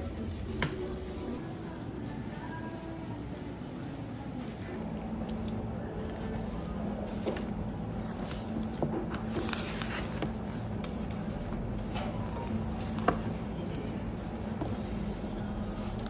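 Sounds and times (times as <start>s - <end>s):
low background hum: 0.0s - 16.0s
book pages turning: 5.2s - 13.5s.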